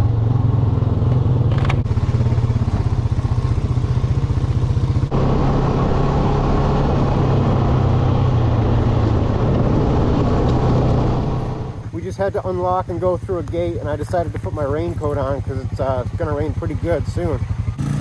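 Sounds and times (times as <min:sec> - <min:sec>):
quad bike engine running: 0:00.0 - 0:08.5, 0:09.4 - 0:18.0.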